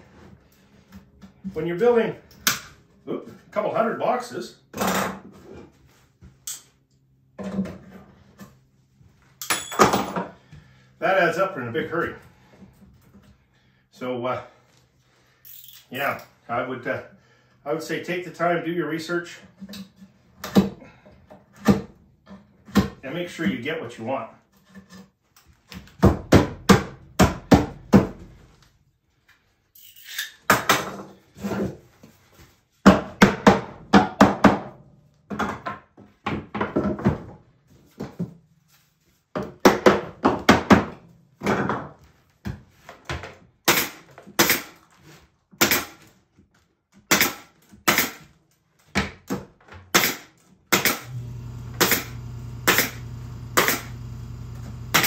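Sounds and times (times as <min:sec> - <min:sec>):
low steady hum: 0:51.1 - 0:55.0.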